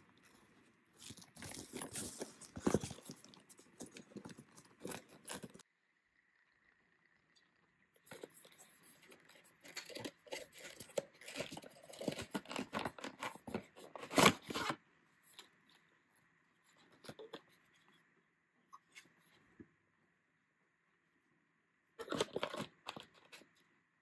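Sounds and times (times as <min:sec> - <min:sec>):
packaging rustling and crackling: 0:01.0 - 0:05.6, 0:08.1 - 0:14.8.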